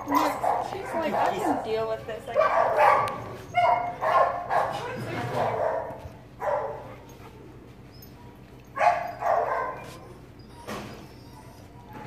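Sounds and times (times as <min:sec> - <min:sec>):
puppy yipping: 0:02.4 - 0:12.0.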